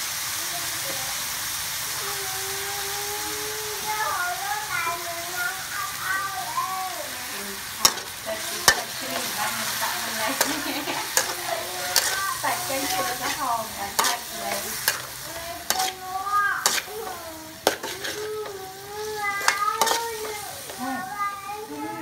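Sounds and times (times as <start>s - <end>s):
meat sizzling in a wok: 0.0s - 22.0s
metal spatula scraping a wok: 7.8s - 20.8s.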